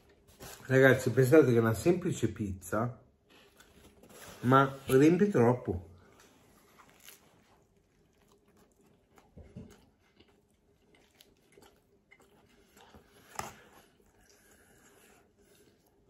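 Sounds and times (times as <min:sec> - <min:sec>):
person chewing: 0:06.1 - 0:16.0.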